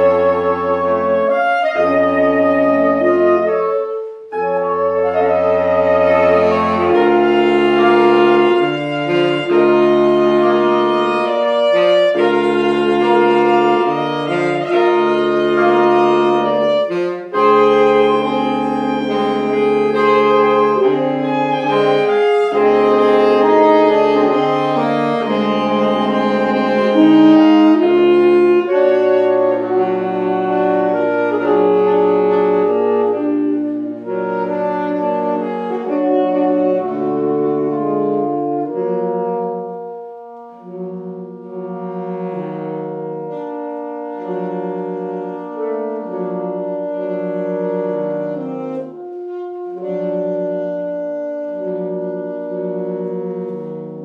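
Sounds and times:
saxophone quartet playing chords: 0.0s - 54.0s.

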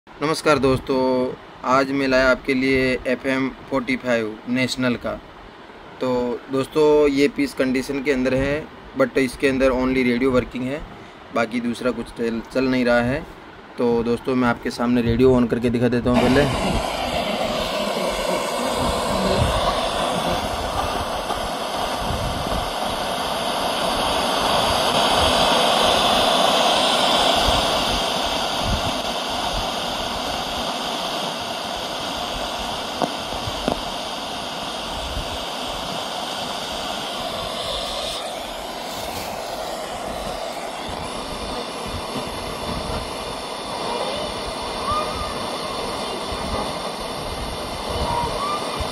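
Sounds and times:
radio static: 16.2s - 34.0s, 34.6s - 48.9s.

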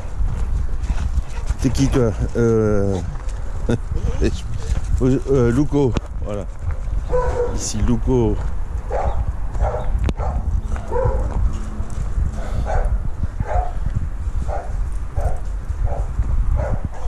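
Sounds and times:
dog barking: 7.1s - 7.7s, 8.9s - 11.4s, 12.4s - 13.8s, 14.5s - 17.0s.

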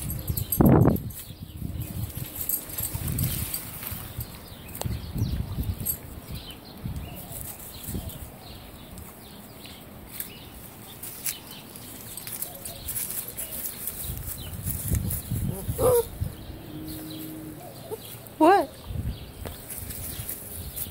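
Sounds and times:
dogs scuffling in dry leaves: 0.9s - 4.8s, 7.1s - 18.7s, 19.6s - 20.9s
dog yelping: 15.5s - 16.1s.

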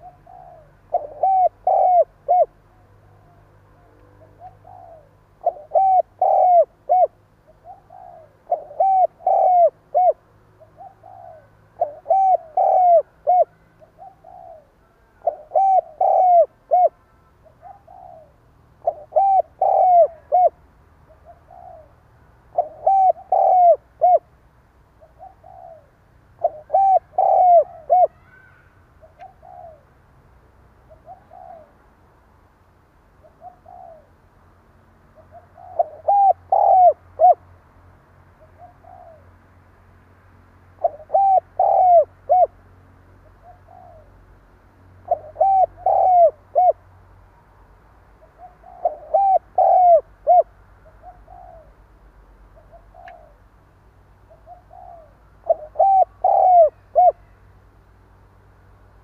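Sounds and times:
dove cooing: 0.0s - 24.3s, 25.0s - 29.9s, 30.8s - 31.8s, 33.2s - 34.2s, 35.2s - 37.5s, 38.4s - 39.4s, 40.8s - 42.6s, 43.2s - 44.2s, 45.0s - 46.9s, 48.2s - 51.9s, 52.5s - 53.5s, 54.2s - 57.4s.

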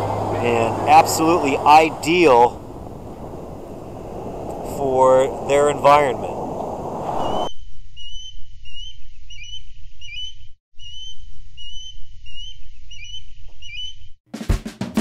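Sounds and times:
steady low rumble: 0.0s - 7.5s
osprey whistled calls: 7.1s - 14.1s.

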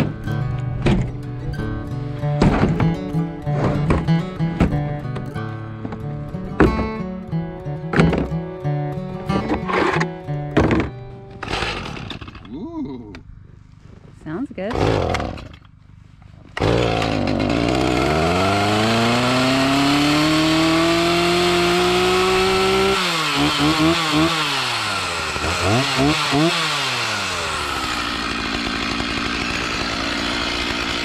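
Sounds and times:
chainsaw starting and revving: 10.8s - 12.5s, 14.7s - 15.8s, 16.6s - 31.0s
chainsaw idling: 14.7s - 15.8s, 16.6s - 31.0s.

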